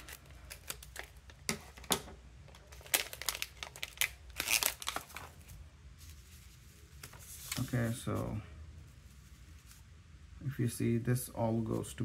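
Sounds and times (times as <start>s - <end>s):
plastic bag crinkling: 0.0s - 1.8s, 2.5s - 8.1s.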